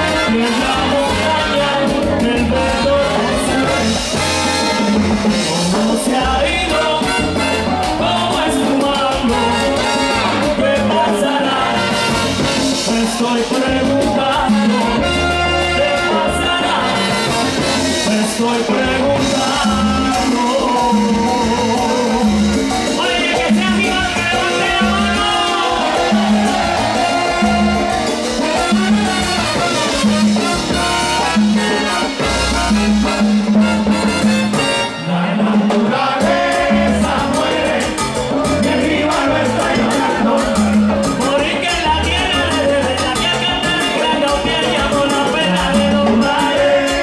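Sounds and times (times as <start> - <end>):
bass: 0.0 - 47.0
percussion: 0.0 - 47.0
salsa band playing: 0.0 - 47.0
person singing: 18.0 - 29.4.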